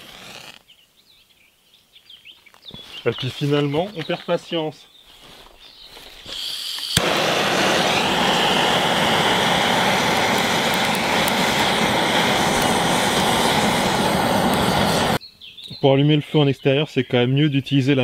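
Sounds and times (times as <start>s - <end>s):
blowtorch flame hissing: 0.0s - 0.6s, 6.2s - 15.2s
gas hissing: 6.2s - 15.2s.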